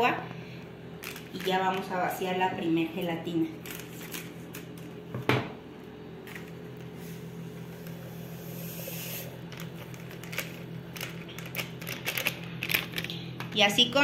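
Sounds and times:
steady low hum: 0:00.0 - 0:14.0
plastic packet crinkling: 0:01.0 - 0:01.9, 0:03.6 - 0:04.9, 0:09.5 - 0:13.5
powder pouring hiss: 0:08.0 - 0:09.4.

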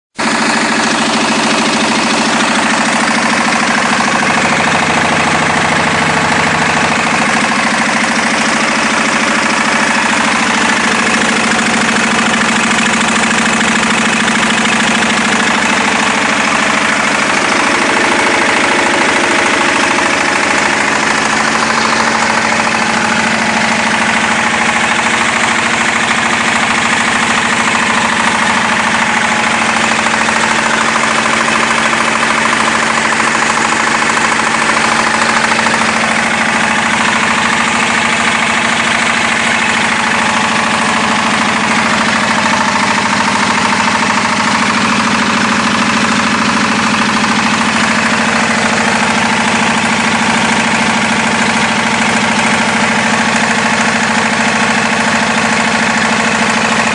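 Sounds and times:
diesel generator running: 0:00.1 - 0:56.9.

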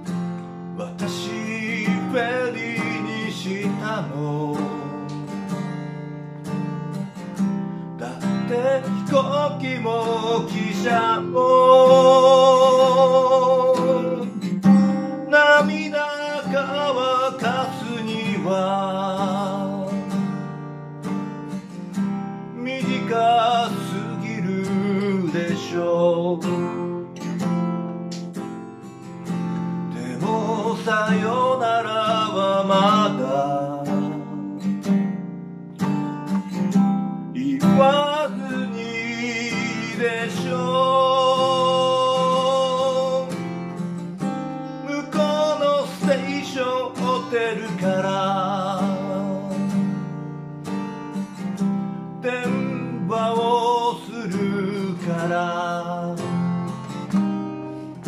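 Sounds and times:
strummed acoustic guitar: 0:00.0 - 0:58.0
man singing: 0:00.8 - 0:05.7, 0:08.0 - 0:20.4, 0:22.5 - 0:27.3, 0:29.9 - 0:34.9, 0:37.3 - 0:50.1, 0:52.2 - 0:56.9.

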